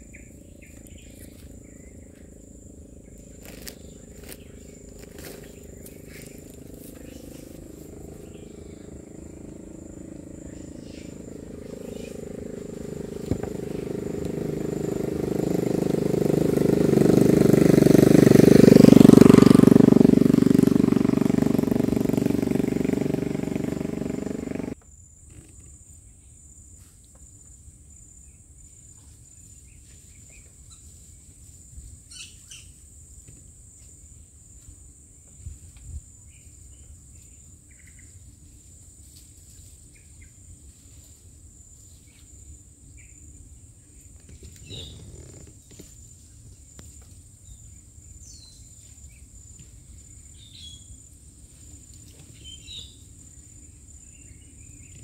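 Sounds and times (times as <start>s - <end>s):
engine passing by: 0.0s - 24.8s, 43.9s - 46.0s.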